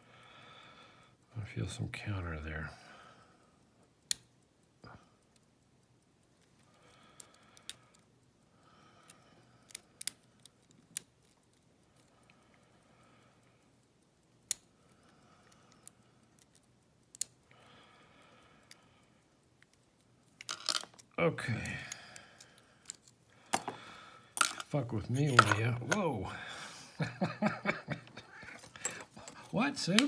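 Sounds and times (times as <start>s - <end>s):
lock pick metallic clicks: 19.6s - 26.1s, 28.5s - 30.0s.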